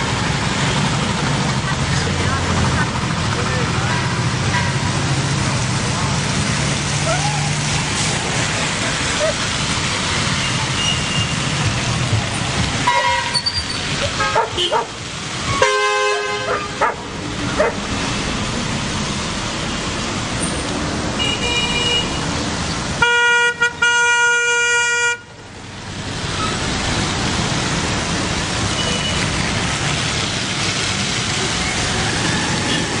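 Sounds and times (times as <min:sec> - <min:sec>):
traffic on wet road: 0:00.0 - 0:33.0
car horns honking: 0:10.3 - 0:11.7, 0:12.8 - 0:17.0, 0:21.2 - 0:22.3, 0:23.0 - 0:25.4.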